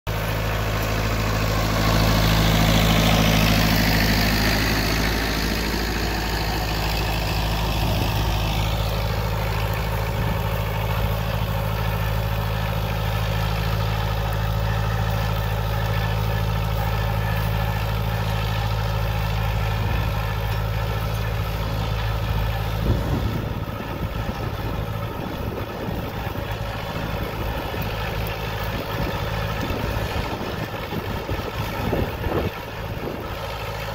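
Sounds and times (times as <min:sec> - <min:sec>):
tractor diesel engine under load: 0:00.0 - 0:33.9.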